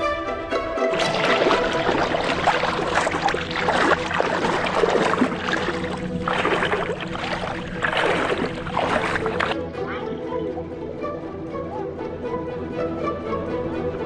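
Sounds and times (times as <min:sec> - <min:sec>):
water splashing around wading legs: 0:00.9 - 0:09.6.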